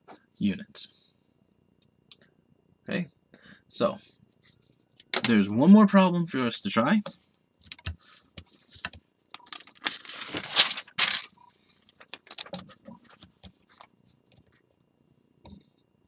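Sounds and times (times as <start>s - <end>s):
notebook page rustling: 7.7s - 14.7s.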